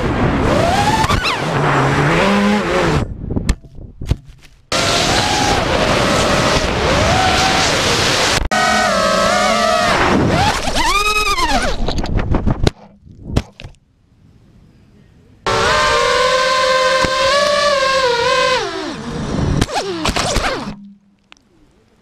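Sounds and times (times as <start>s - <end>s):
drone motors whining: 0.0s - 3.0s, 4.7s - 12.0s, 15.5s - 21.0s.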